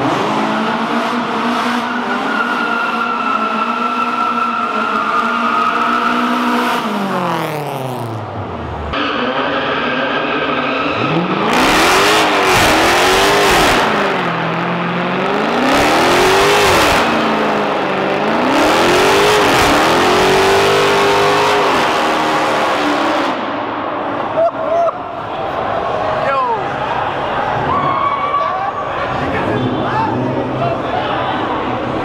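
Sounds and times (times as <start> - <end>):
car engine revving: 0.0 - 24.3
tyres squealing on concrete: 1.8 - 6.6.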